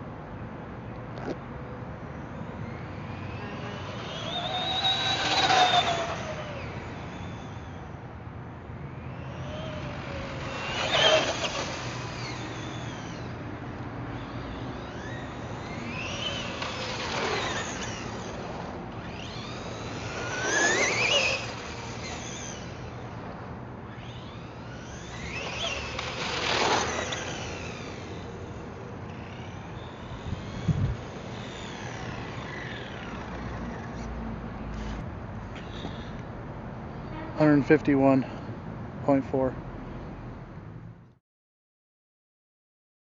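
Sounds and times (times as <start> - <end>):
rc truck electric motor whining: 2.1 - 36.3.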